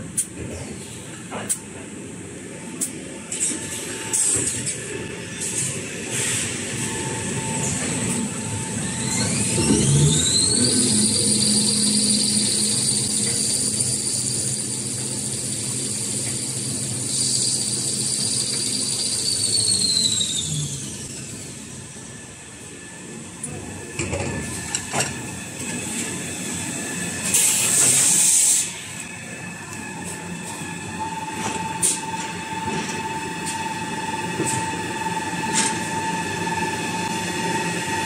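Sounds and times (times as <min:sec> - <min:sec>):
machine high whine: 0:01.9 - 0:38.0.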